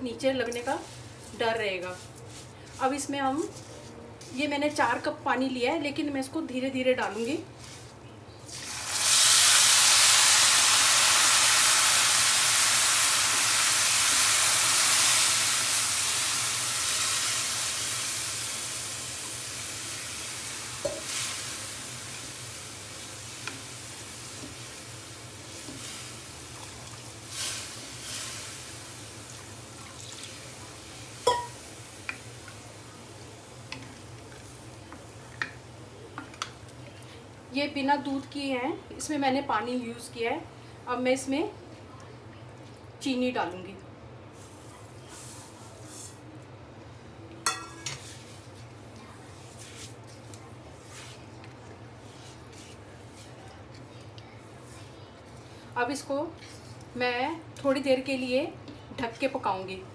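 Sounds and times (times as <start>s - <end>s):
water sizzling in hot pan: 8.5s - 36.4s.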